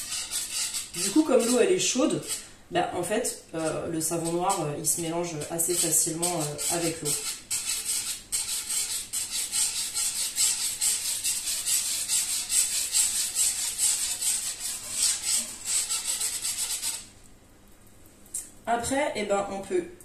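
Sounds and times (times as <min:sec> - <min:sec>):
wire whisk swishing in saucepan: 0:00.0 - 0:02.4, 0:03.6 - 0:17.1.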